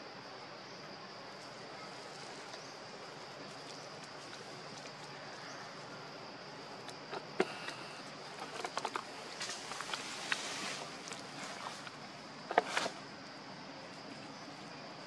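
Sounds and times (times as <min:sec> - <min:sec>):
clicks and rustle in leaf litter: 0:08.3 - 0:13.0.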